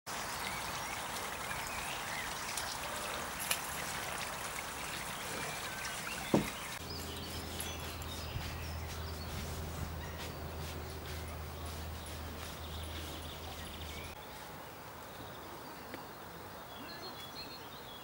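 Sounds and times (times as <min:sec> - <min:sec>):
bird chirps: 0:05.2 - 0:14.5.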